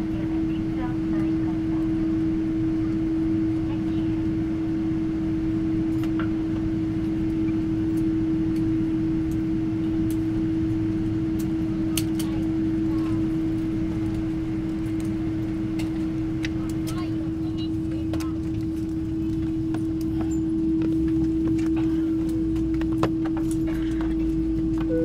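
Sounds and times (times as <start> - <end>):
airplane cabin hum: 0.0 - 25.0
low rumble: 0.0 - 25.0
steady tone: 6.6 - 25.0.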